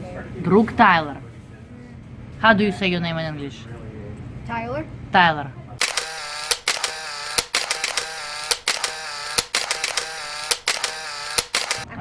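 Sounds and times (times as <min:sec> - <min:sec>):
camera shutter clicks: 0:05.8 - 0:11.9.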